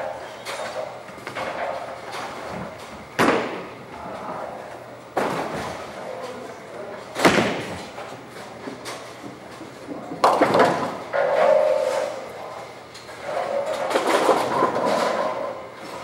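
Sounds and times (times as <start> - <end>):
bowling balls crashing into pins: 2.2 - 3.8, 5.1 - 6.0, 7.1 - 8.0, 9.6 - 12.3, 13.3 - 16.0.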